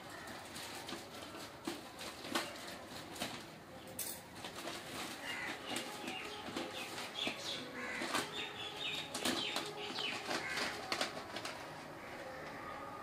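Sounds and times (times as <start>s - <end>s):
plastic packaging crinkling: 0.0s - 12.6s
seeds shifting in bag: 4.4s - 12.6s.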